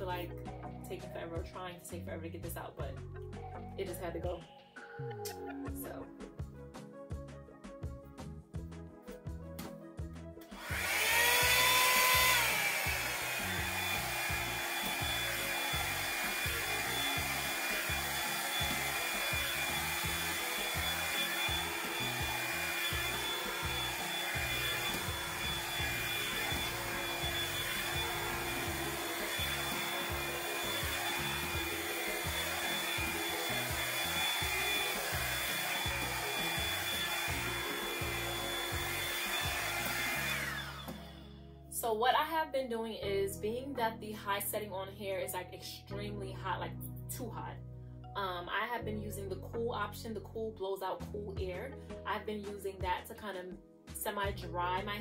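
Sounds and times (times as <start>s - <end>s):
hair dryer brush whine: 10.4s - 41.4s.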